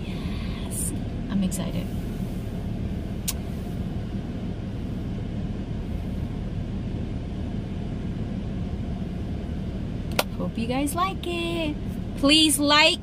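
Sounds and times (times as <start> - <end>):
car engine rumble inside cabin: 0.0 - 13.0.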